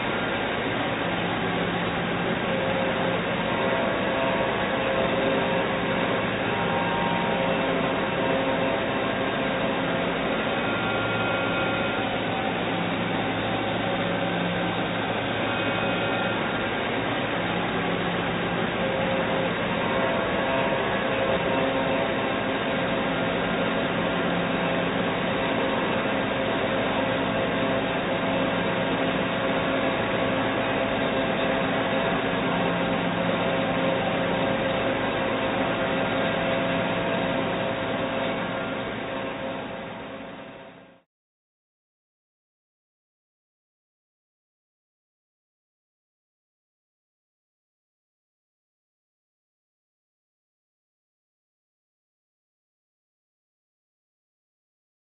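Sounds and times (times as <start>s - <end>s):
held machine tones: 0.0s - 40.2s
lathe mechanical whir: 0.0s - 41.0s.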